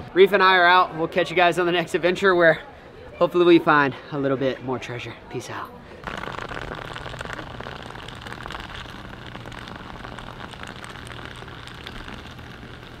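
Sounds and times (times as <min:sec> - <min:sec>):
magnet scraping across asphalt: 0:06.0 - 0:13.0.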